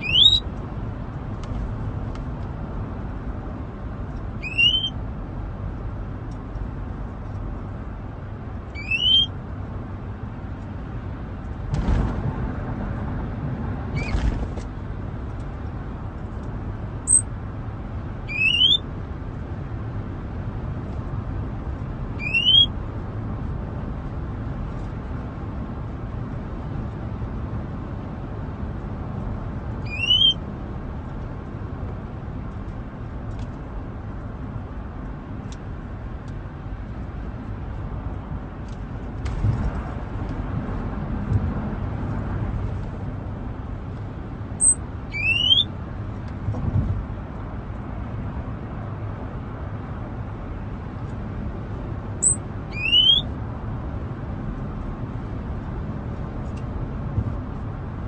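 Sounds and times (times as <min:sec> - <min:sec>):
songbird whistles: 0:00.0 - 0:00.5, 0:04.4 - 0:05.0, 0:08.7 - 0:09.4, 0:14.0 - 0:14.2, 0:17.1 - 0:17.3, 0:18.3 - 0:18.8, 0:22.2 - 0:22.7, 0:29.8 - 0:30.4, 0:44.6 - 0:45.7, 0:52.2 - 0:53.3.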